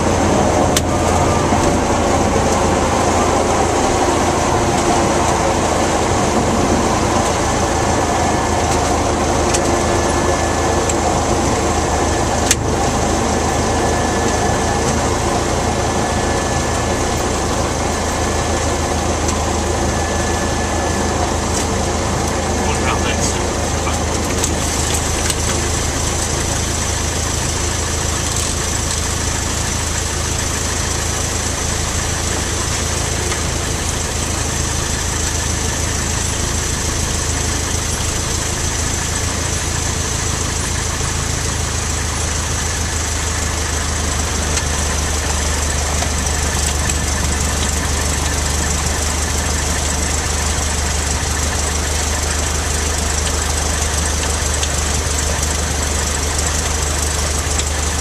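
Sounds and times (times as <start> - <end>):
light aircraft engine inside cabin: 0.0 - 58.0.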